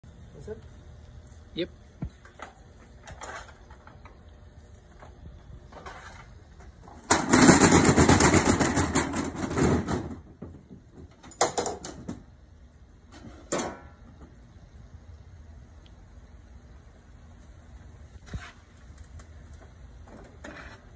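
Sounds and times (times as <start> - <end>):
metal shutter rattling: 6.8 - 10.4.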